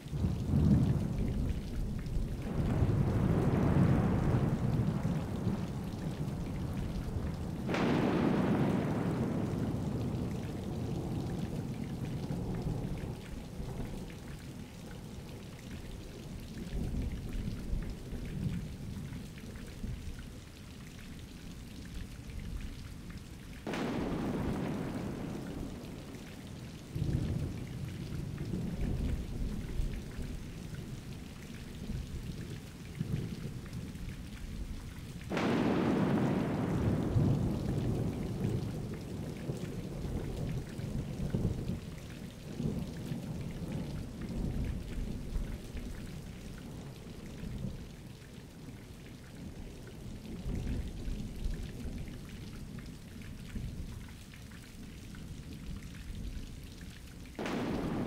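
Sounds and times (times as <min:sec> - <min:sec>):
rain falling: 0:00.0 - 0:58.0
low rolling thunder: 0:00.1 - 0:20.0, 0:23.6 - 0:34.7, 0:35.3 - 0:48.5, 0:57.4 - 0:58.0
loud thunderclap: 0:07.6 - 0:10.3, 0:23.6 - 0:26.1, 0:35.3 - 0:38.8, 0:57.4 - 0:58.0.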